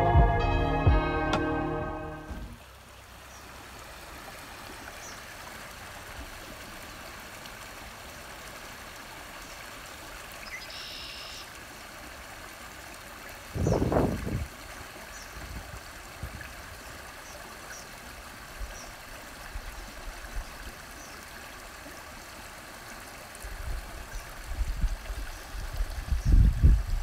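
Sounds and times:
creek water flowing: 0:00.0 - 0:27.0
faint bird chirps: 0:10.4 - 0:11.5.

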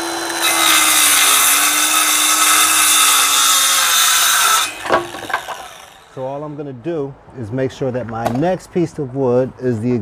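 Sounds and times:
circular saw cutting wood: 0:00.0 - 0:06.6.

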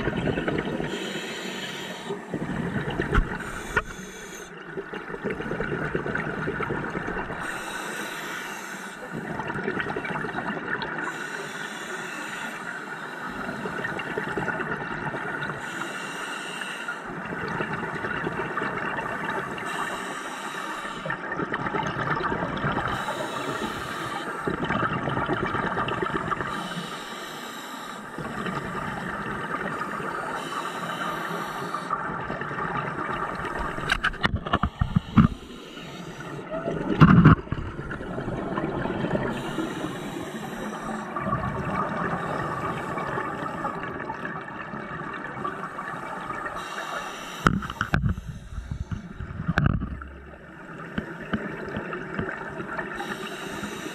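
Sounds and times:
exhaled bubbles rumbling: 0:00.0 - 0:01.1, 0:02.3 - 0:07.6, 0:09.2 - 0:11.0, 0:21.1 - 0:23.1, 0:24.4 - 0:26.5, 0:32.0 - 0:40.0, 0:40.7 - 0:46.6, 0:47.4 - 0:53.0
regulator inhale hiss: 0:00.9 - 0:04.6, 0:07.3 - 0:09.3, 0:11.0 - 0:14.2, 0:15.6 - 0:17.1, 0:19.4 - 0:21.2, 0:23.0 - 0:24.5, 0:26.5 - 0:29.0, 0:29.8 - 0:32.0, 0:34.6 - 0:36.5, 0:39.3 - 0:41.2, 0:45.4 - 0:49.2, 0:53.0 - 0:53.9.

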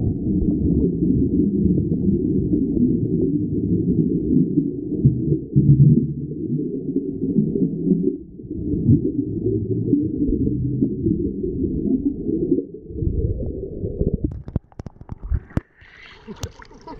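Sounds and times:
bubbling exhaled air: 0:00.0 - 0:16.9
muffled underwater rumble: 0:00.0 - 0:16.9
sharp clicks and crackles: 0:14.1 - 0:15.8.

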